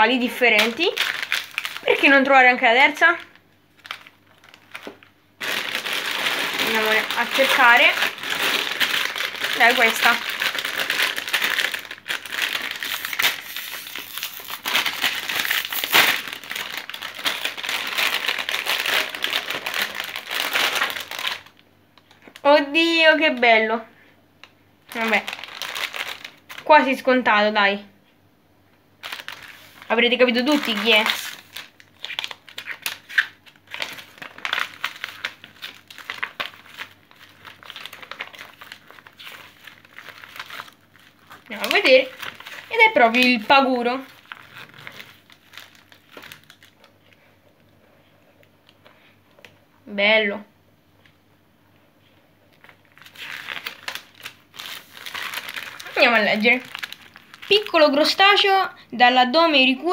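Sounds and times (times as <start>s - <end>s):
foil bag crinkling: 0.2s - 22.4s, 24.9s - 27.1s, 29.0s - 47.3s, 52.5s - 58.5s
magazine pages rustling: 3.8s - 21.5s, 29.0s - 43.4s, 44.1s - 46.9s, 52.6s - 57.8s.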